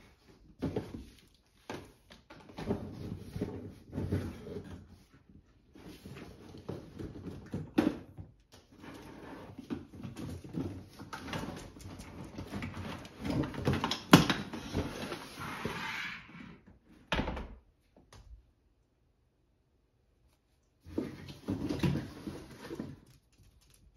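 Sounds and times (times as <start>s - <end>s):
cardboard scraping and rustling: 12.3s - 16.2s, 20.9s - 23.2s.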